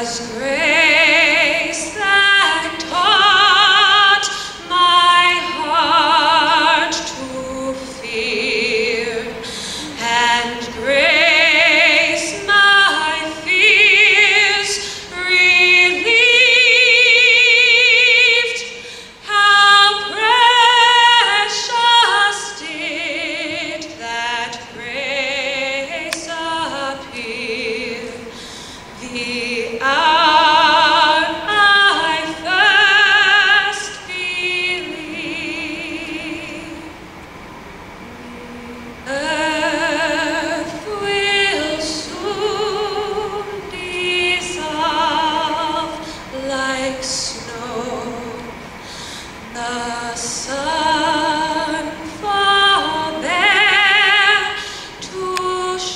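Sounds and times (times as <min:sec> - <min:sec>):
woman singing into microphone: 0:00.0 - 0:37.1, 0:38.0 - 0:55.9.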